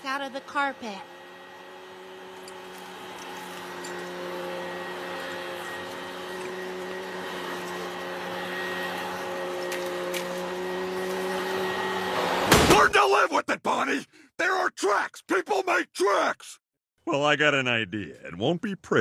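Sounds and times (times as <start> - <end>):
vacuum cleaner on carpet: 0.0 - 12.5.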